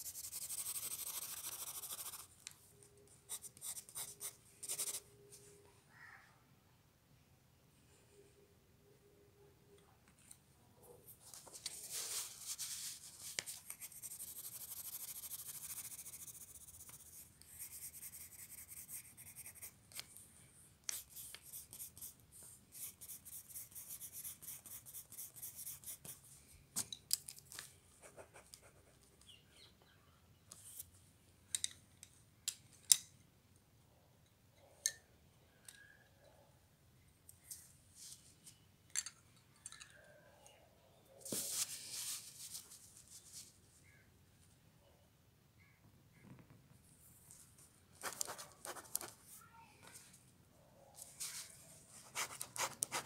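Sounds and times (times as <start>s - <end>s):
pencil scratching on paper: 0.0s - 2.3s, 3.3s - 5.0s, 11.7s - 19.8s, 20.9s - 26.2s, 48.0s - 49.2s, 52.0s - 53.0s.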